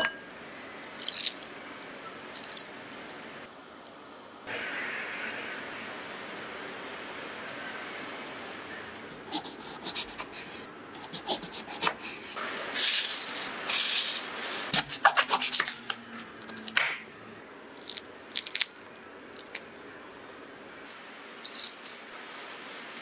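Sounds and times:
knife cutting fruit rind: 14.7s - 16.9s.

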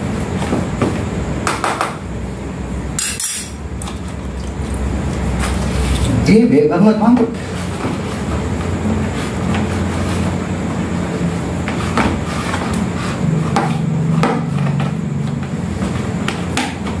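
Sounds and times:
steady low hum: 0.0s - 17.0s
hands kneading wet dough: 3.7s - 10.5s.

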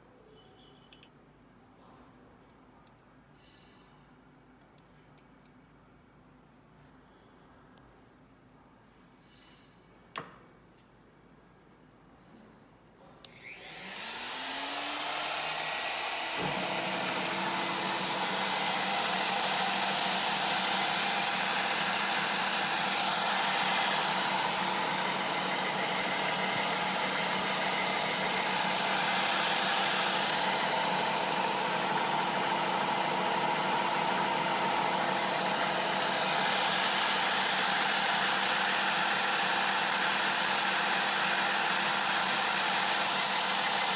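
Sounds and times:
click: 0.8s - 1.1s, 2.5s - 3.1s, 4.6s - 5.7s, 10.1s - 10.9s, 13.2s - 13.5s
router whining and whirring: 13.2s - 43.9s.

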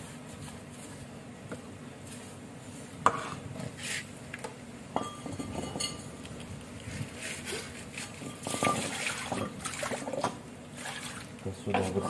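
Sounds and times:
metal ringing tone: 5.0s - 6.1s.

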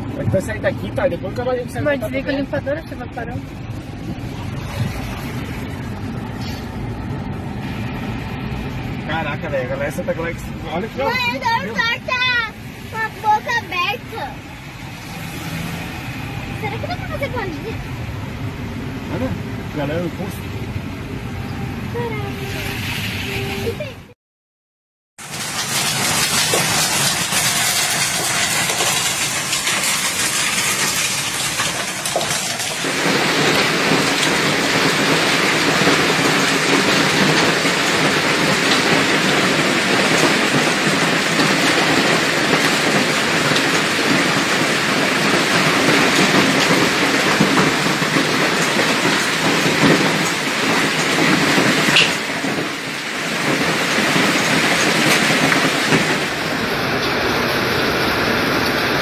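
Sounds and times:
hail and heavy rain: 25.2s - 59.0s.

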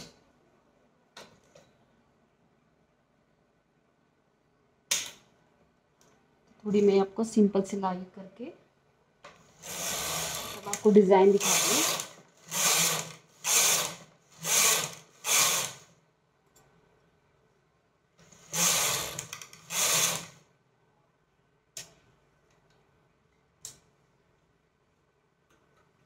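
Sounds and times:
knitting machine carriage whirring: 9.4s - 15.9s, 18.2s - 20.4s.

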